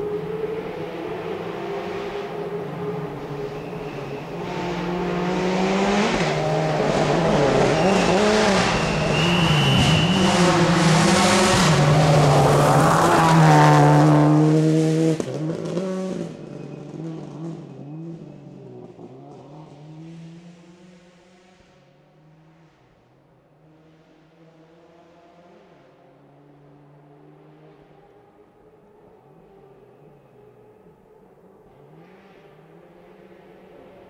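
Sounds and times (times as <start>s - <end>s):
rally car engine revving: 0.0s - 21.7s.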